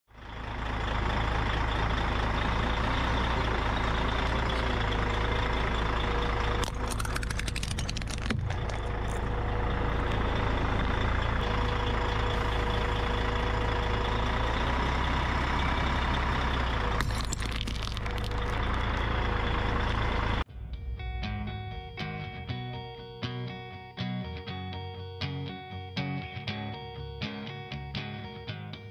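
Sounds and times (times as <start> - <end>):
truck engine running: 0.1 - 24.3
glass baubles crunching under tyre: 6.6 - 9.3, 17.0 - 19.0.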